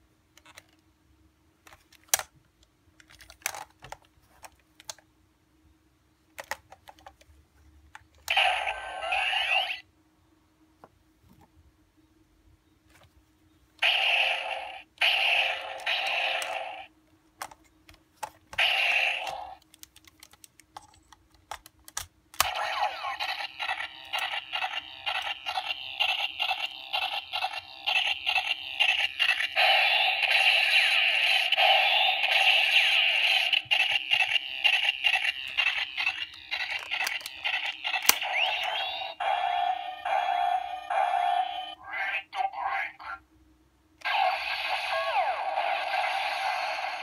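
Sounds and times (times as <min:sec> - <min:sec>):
plastic clicks from handling toy: 0:00.3 - 0:00.9, 0:01.6 - 0:05.1, 0:06.3 - 0:07.3, 0:17.4 - 0:22.6, 0:33.8 - 0:38.2
toy electronic pulses and tones: 0:08.3 - 0:09.8, 0:13.8 - 0:16.9, 0:22.4 - 0:41.8, 0:44.0 - 0:47.0.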